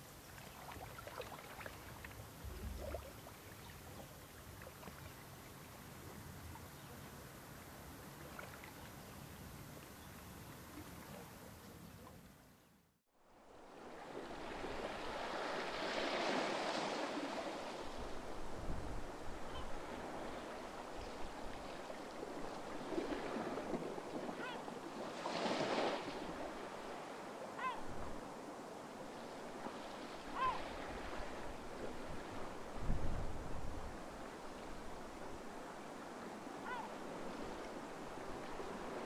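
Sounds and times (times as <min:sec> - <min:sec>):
small waves breaking on beach: 0:00.0 - 0:12.2, 0:13.1 - 0:39.0
faint bird calls: 0:19.4 - 0:19.8, 0:27.5 - 0:27.9, 0:30.3 - 0:30.8, 0:36.6 - 0:37.0.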